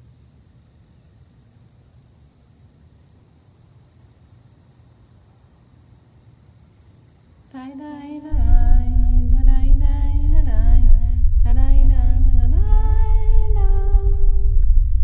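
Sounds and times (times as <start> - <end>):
wordless voice humming: 7.6 - 14.6
deep steady drone: 8.3 - 15.0.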